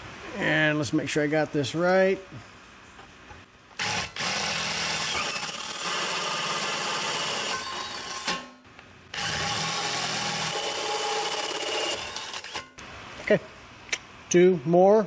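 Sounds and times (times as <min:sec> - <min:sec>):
cordless drill drilling metal: 0:03.8 - 0:08.4, 0:09.1 - 0:12.7.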